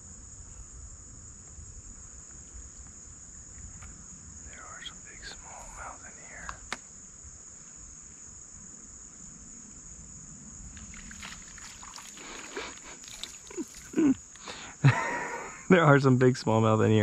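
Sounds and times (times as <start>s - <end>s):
insects droning: 0.0s - 17.0s
fish splashing: 10.8s - 14.1s.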